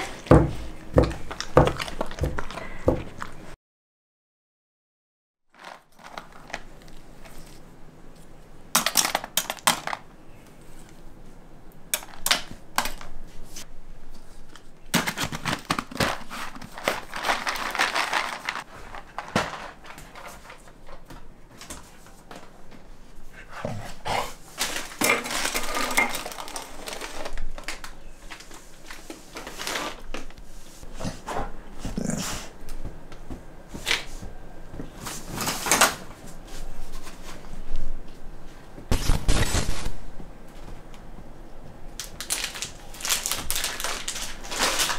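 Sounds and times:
dog biscuits rattling in plastic jar: 5.6s - 7.5s, 15.0s - 20.6s, 24.8s - 27.8s, 42.1s - 44.9s.

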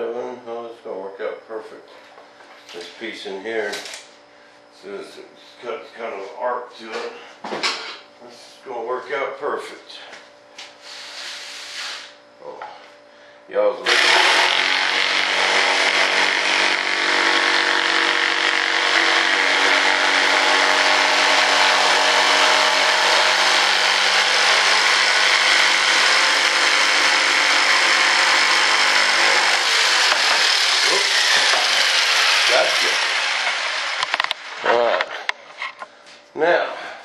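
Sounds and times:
electric motor hissing and humming: 13.8s - 34.9s.

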